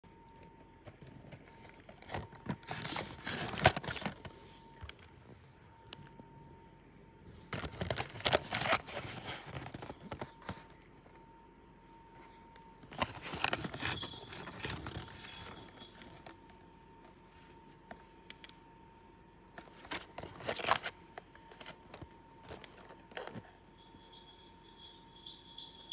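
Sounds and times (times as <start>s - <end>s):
cards rustling and scraping: 1.2s - 5.1s, 7.3s - 10.8s, 12.8s - 16.4s, 19.5s - 23.5s.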